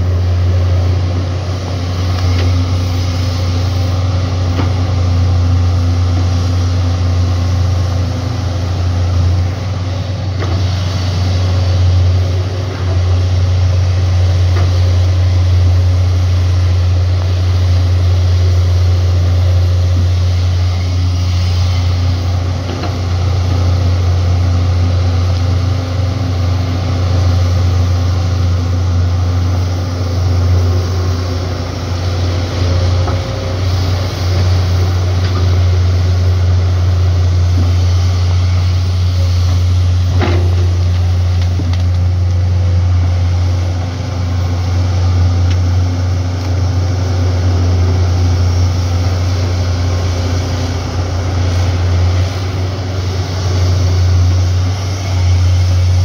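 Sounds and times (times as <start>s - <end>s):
excavator diesel engines droning: 0.0s - 56.0s.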